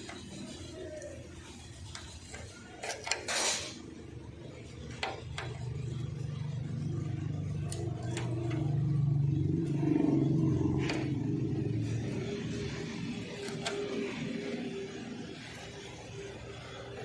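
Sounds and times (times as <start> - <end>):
metal scrape: 0.0 - 17.0
low engine hum: 4.5 - 17.0.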